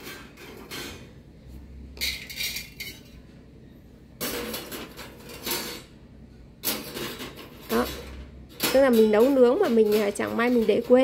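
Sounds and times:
metal sheets clanking on stove grates: 6.6 - 11.0.

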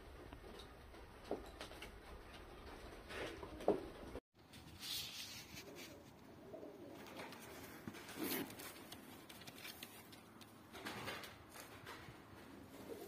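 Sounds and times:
pigeons cooing faintly: 5.3 - 13.0.

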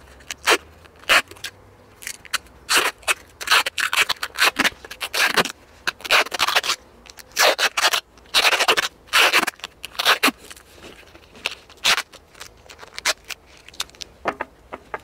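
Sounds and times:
adhesive tape pulled off roll: 0.2 - 14.1.

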